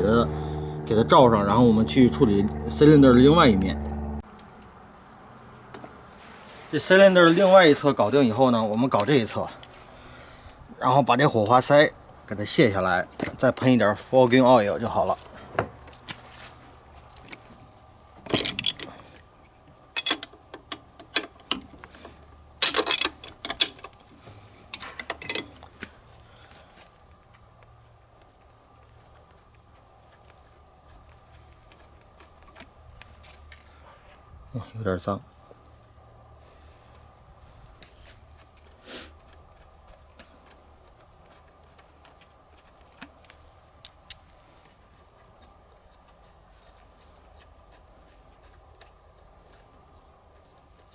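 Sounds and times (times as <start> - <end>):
faint low background rumble: 0.0 - 50.9
wrench clicking and scraping: 20.0 - 21.7, 22.6 - 24.0, 24.7 - 25.6.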